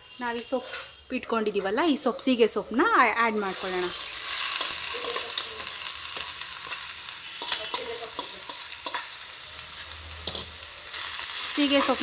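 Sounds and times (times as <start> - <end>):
food sizzling in a frying pan: 0.0 - 12.0
steel ladle clinking and scraping: 6.2 - 9.2, 9.8 - 12.0.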